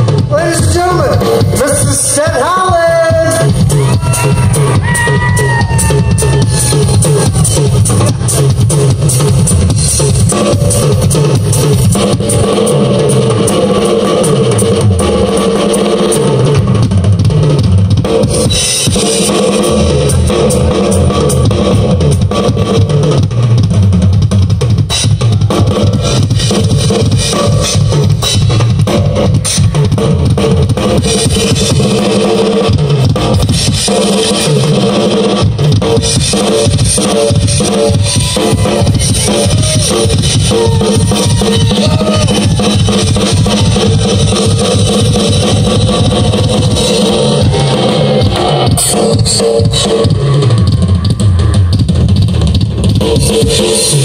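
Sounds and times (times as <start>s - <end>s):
bass guitar: 0.0s - 54.0s
drum hits and cymbals: 0.0s - 54.0s
rock band playing: 0.0s - 54.0s.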